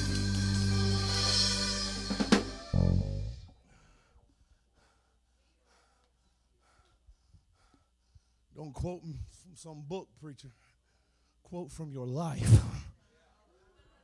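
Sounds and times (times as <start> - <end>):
band music with drums: 0.0 - 3.1
cymbal crash: 0.0 - 3.2.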